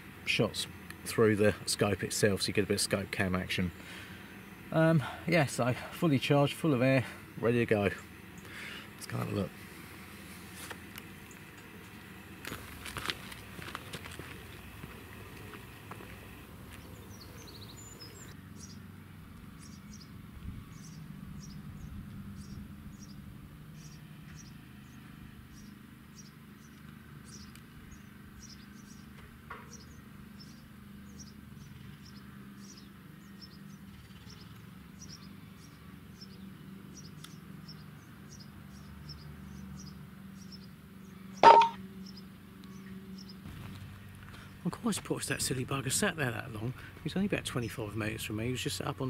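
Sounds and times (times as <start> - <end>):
high bird chirps: 41.4 - 41.8.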